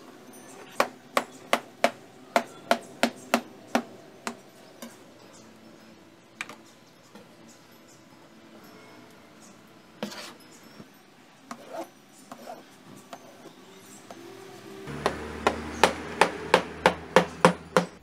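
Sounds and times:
knife chopping on plastic board: 14.9s - 18.0s.

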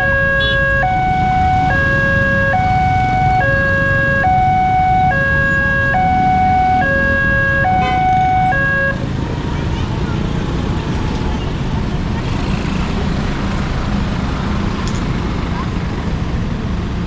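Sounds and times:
two-tone level crossing alarm: 0.0s - 9.0s
motorcycle engines rumbling: 0.0s - 17.0s.

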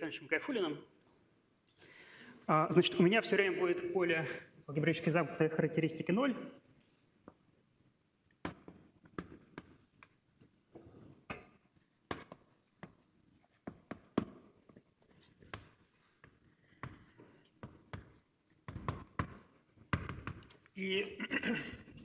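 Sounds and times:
writing taps and scratches on board: 8.4s - 10.5s, 11.3s - 20.8s.

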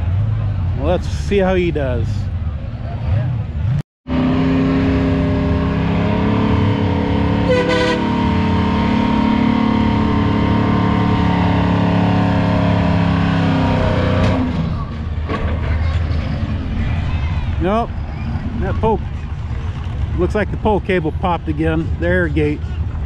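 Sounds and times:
truck diesel engine revving hard: 3.1s - 15.0s.

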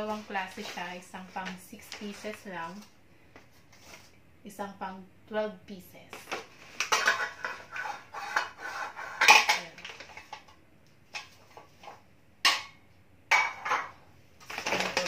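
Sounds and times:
metal muffin pans clanking: 6.8s - 8.6s, 9.2s - 10.4s
paper bag crackling: 14.4s - 15.0s.

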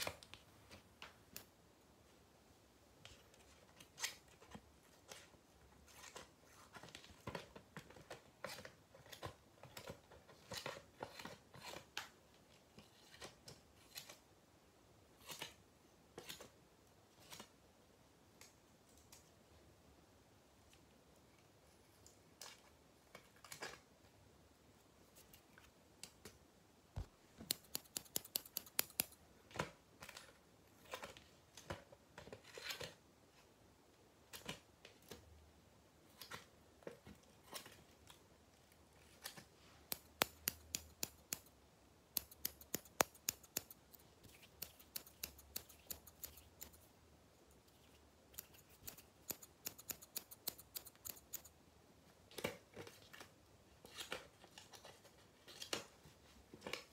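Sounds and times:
scissors snipping hair: 27.4s - 29.2s, 39.3s - 46.9s, 48.3s - 51.5s.

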